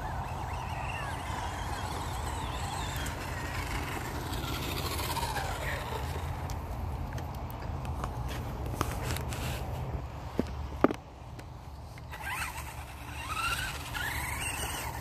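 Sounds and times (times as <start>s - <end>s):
rc car electric motor whining: 0.0s - 6.5s, 12.1s - 15.0s.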